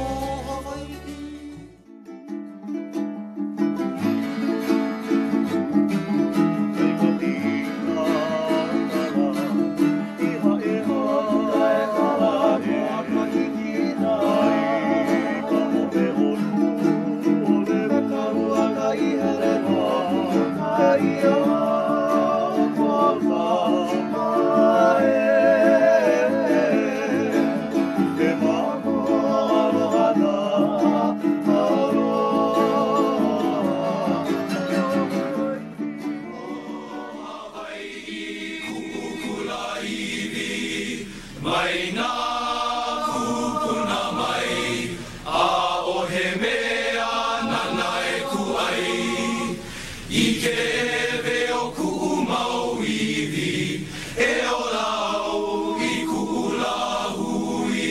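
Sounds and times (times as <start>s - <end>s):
men singing together: 0.0s - 1.7s, 6.3s - 57.9s
plucked upright bass: 0.0s - 37.0s
strummed acoustic guitar: 0.0s - 37.8s, 38.5s - 42.1s, 43.0s - 46.6s
ukulele: 0.0s - 57.9s.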